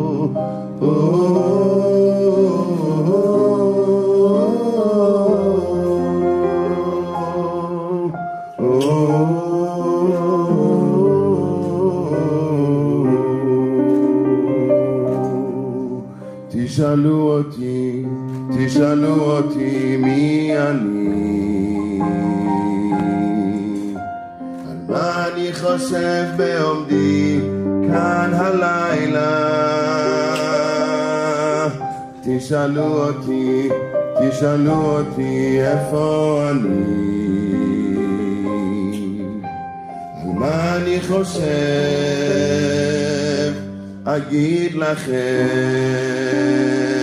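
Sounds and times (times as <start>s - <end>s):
sustained accompaniment: 0.0s - 16.4s
man singing into a microphone: 0.0s - 24.0s, 24.6s - 47.0s
instrumental accompaniment: 0.0s - 47.0s.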